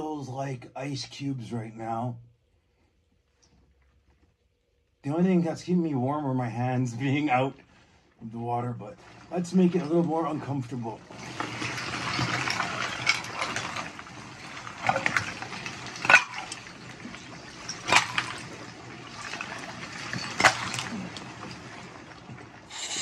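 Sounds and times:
ice water sloshing: 8.5s - 23.0s
ice knocking clicks: 11.3s - 21.8s.

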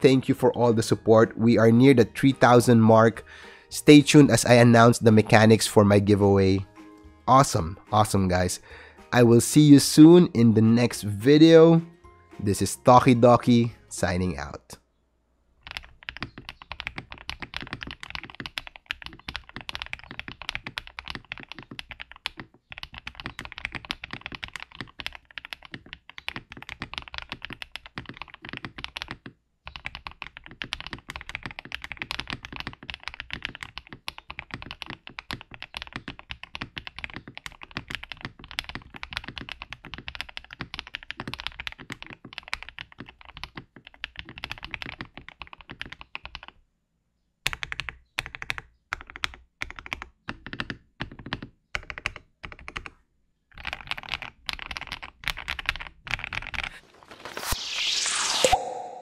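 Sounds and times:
fast typing on mechanical keyboard: 15.6s - 46.6s, 47.5s - 52.9s, 53.5s - 56.8s.

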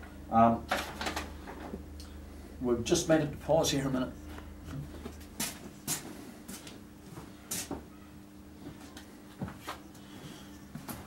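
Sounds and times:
faint steady hum: 0.0s - 11.0s
footsteps on workshop floor: 4.7s - 7.9s, 8.6s - 11.0s.

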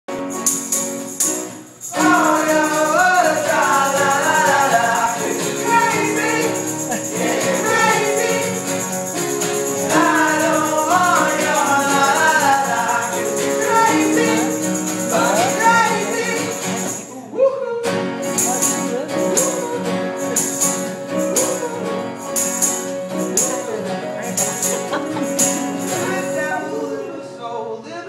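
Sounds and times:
guitars strumming: 0.1s - 17.2s, 17.9s - 27.2s
man singing: 2.0s - 8.5s, 9.8s - 20.5s.

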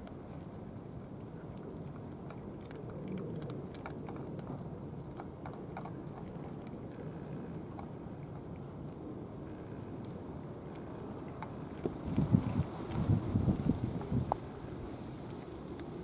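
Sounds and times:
cat crunching food: 1.9s - 8.4s.

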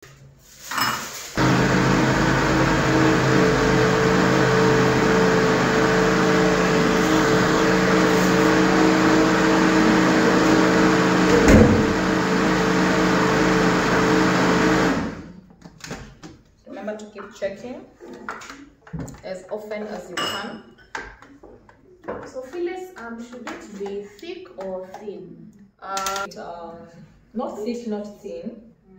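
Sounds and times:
blender running: 1.4s - 15.4s.

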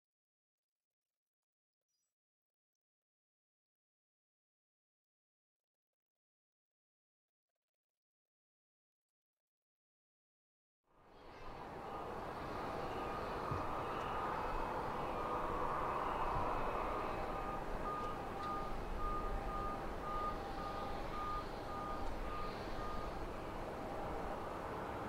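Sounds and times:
distant aircraft rumble: 11.2s - 25.0s
reversing beeper beeps: 11.7s - 24.4s.

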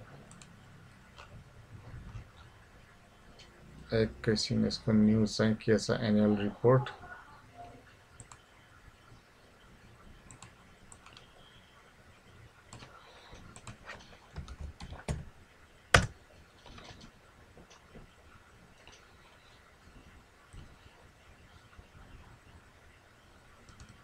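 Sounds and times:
keyboard and mouse clicks: 10.2s - 11.3s, 12.7s - 15.2s, 15.9s - 17.9s, 23.6s - 24.0s.

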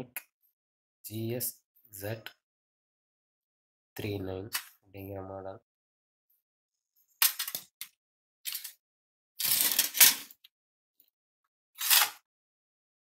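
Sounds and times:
metal and plastic rattling: 9.4s - 10.3s.

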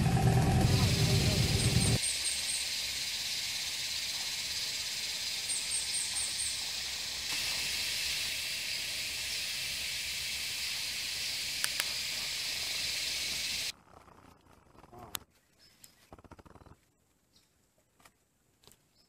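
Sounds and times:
insects hissing: 0.6s - 13.7s
sharp clicks: 11.6s - 12.0s.

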